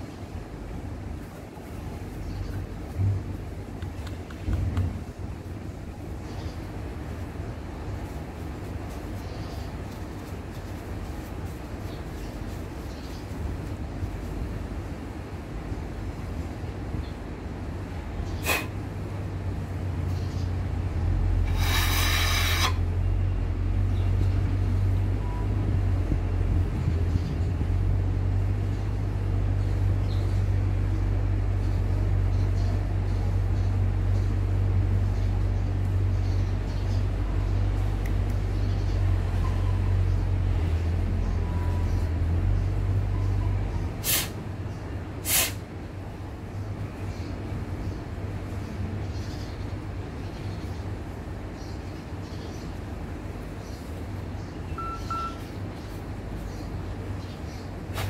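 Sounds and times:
low rumble: 2.9s - 3.7s
spray hiss: 21.4s - 22.8s, 44.0s - 44.4s, 45.2s - 45.6s.

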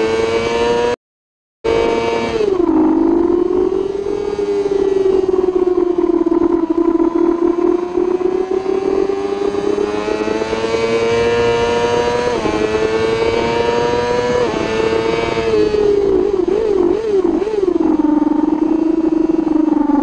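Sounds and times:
motorcycle engine revving: 0.0s - 1.0s, 1.6s - 20.0s
gear upshifts: 1.8s - 20.0s
wind rush: 2.3s - 19.1s.

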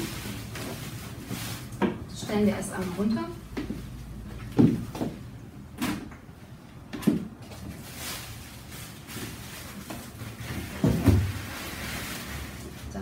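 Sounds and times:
packing material rustling: 0.0s - 1.8s, 7.4s - 13.0s.

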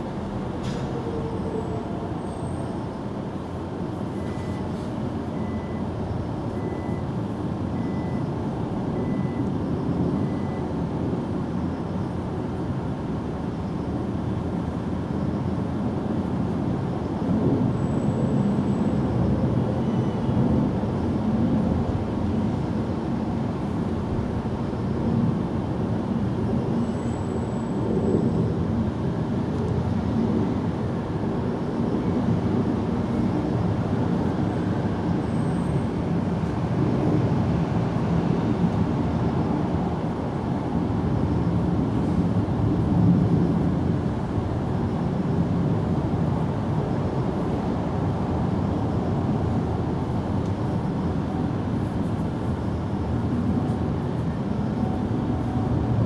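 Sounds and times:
short beeps: 4.2s - 4.7s, 5.3s - 5.9s, 6.6s - 7.1s, 7.8s - 8.2s, 9.0s - 9.5s, 10.2s - 10.7s.

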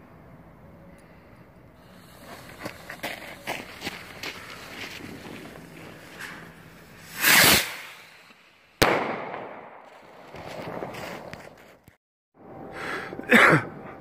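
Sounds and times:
firework hissing burst: 1.8s - 9.5s
firework crackling: 1.9s - 11.6s
firework bang: 7.0s - 11.3s.

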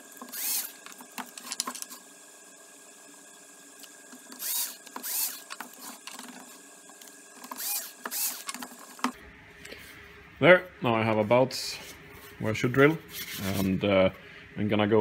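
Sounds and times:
cordless drill whirring: 0.0s - 2.1s, 3.8s - 9.2s.

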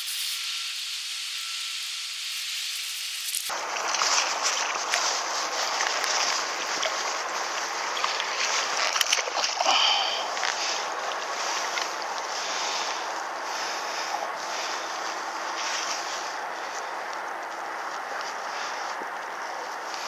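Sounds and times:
fish splashing at surface: 3.5s - 12.6s
lapping water: 3.5s - 15.4s
wind buffeting microphone: 10.5s - 20.0s.

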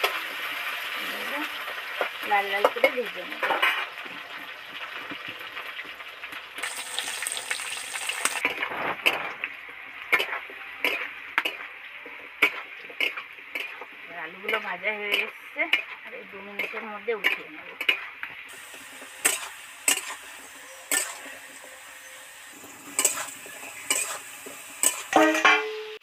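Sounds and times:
potatoes frying in oil: 0.0s - 26.0s
metal spatula scraping pan: 18.9s - 26.0s.

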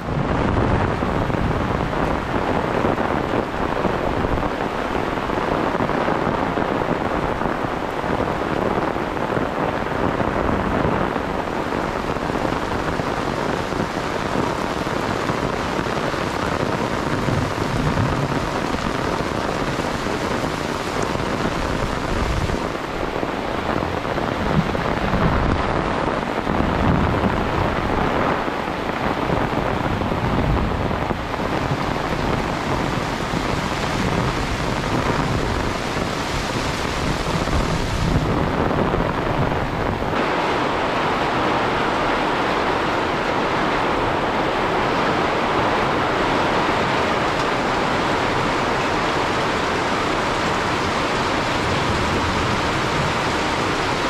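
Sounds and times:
heavy rain hissing: 0.0s - 54.0s
low rumble of wind gusts: 0.0s - 54.0s.

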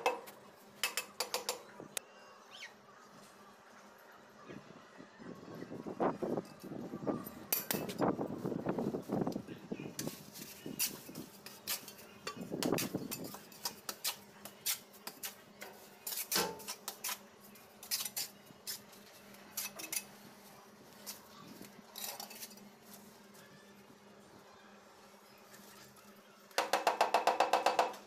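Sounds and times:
trowel scraping mortar: 10.0s - 17.2s, 17.8s - 18.9s.

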